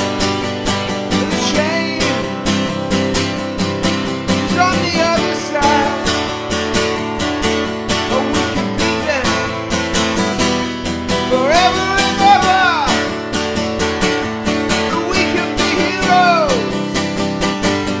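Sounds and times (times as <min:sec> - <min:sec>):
acoustic guitar strumming: 0:00.0 - 0:18.0.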